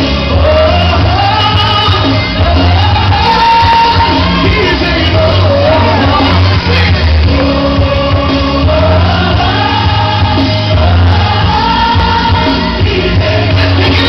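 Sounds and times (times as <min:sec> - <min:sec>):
gospel singing voices: 0:00.0 - 0:14.0
heavy bass line: 0:00.0 - 0:14.0.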